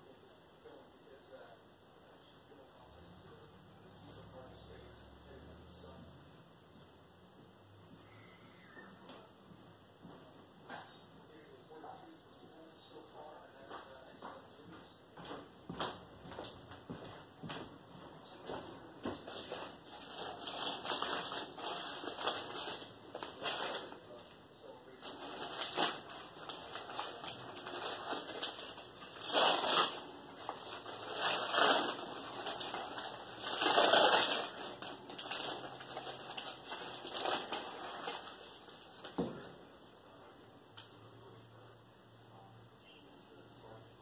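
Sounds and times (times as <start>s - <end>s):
crunching and rustling: 18.3s - 39.5s.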